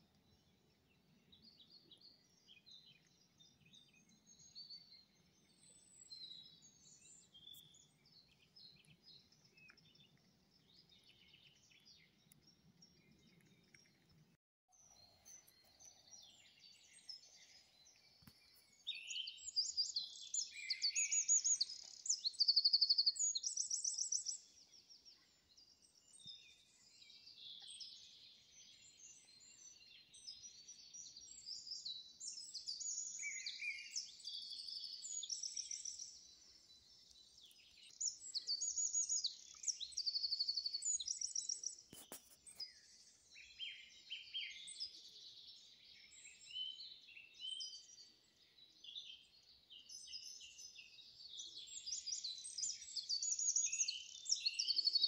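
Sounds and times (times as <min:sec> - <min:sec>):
songbirds singing: 0:00.0 - 0:55.0.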